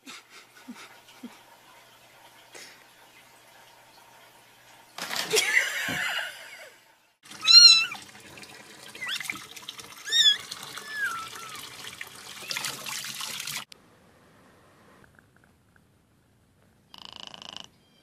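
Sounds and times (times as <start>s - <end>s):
running water from a tap: 7.2s - 13.7s.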